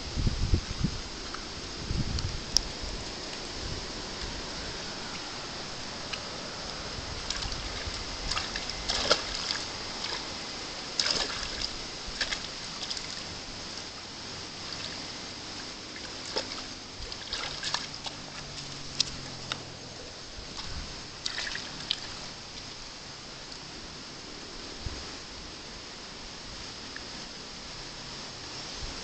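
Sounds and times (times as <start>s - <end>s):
water splashing in a plastic tub: 2.3s - 22.7s.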